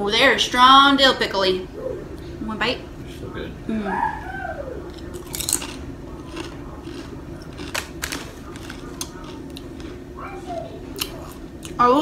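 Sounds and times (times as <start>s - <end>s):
chips crunching while chewed: 4.9s - 10.1s, 10.9s - 11.8s.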